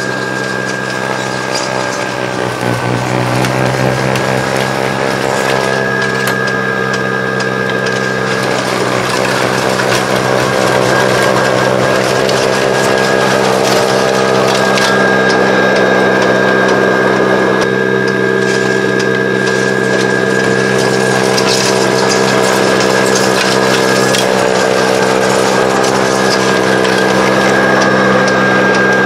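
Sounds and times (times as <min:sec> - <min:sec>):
electric motor hum with whine: 0:00.0 - 0:29.0
snow blower auger hissing: 0:00.0 - 0:29.0.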